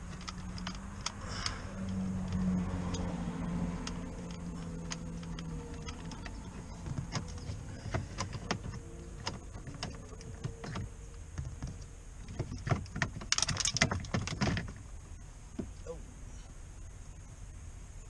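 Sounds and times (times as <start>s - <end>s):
allen key and screws clicking on metal: 0.0s - 10.9s.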